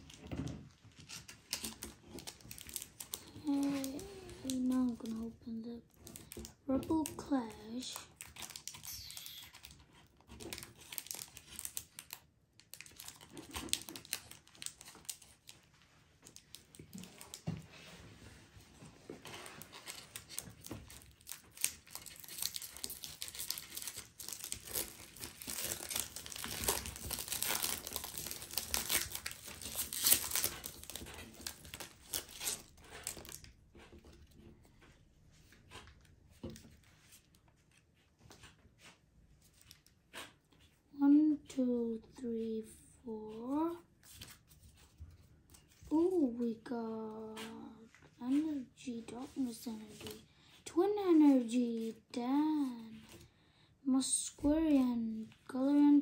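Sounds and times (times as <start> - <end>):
foil wrapper tearing and crinkling: 0.9 - 17.5, 19.2 - 34.2.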